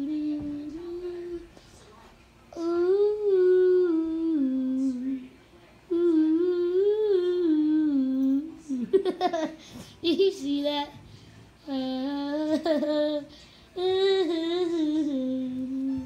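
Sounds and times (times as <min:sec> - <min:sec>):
person humming: 0:02.6 - 0:05.3, 0:05.9 - 0:08.9, 0:11.7 - 0:16.0.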